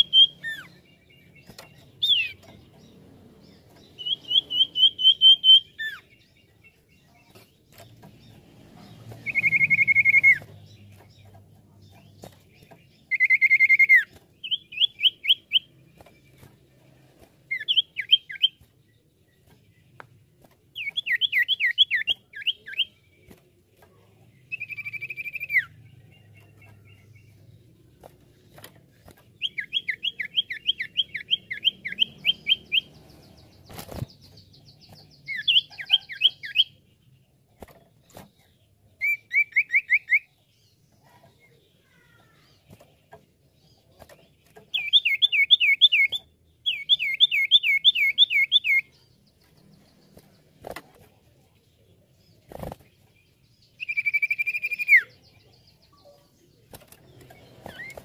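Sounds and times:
bird singing whistled notes: 0.0 - 2.5, 3.9 - 6.7, 9.2 - 10.9, 13.0 - 15.7, 17.5 - 18.6, 20.8 - 23.0, 24.5 - 27.3, 29.4 - 33.0, 33.6 - 36.8, 39.0 - 40.4, 44.7 - 49.0, 53.6 - 56.2.

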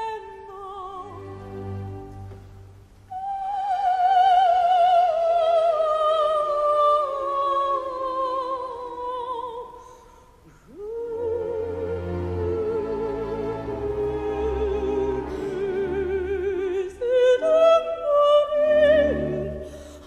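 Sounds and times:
operatic soprano singing: 0.0 - 2.3, 3.1 - 9.8, 10.7 - 20.0
orchestra playing: 11.4 - 16.9, 18.7 - 20.0.

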